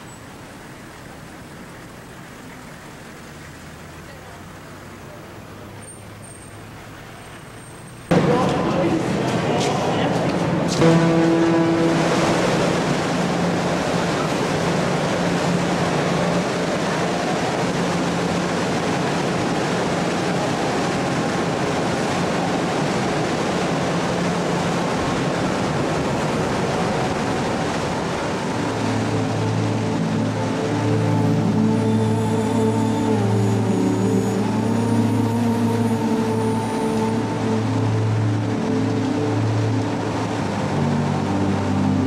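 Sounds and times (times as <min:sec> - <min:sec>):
water wash and ship engine: 0:00.0 - 0:42.0.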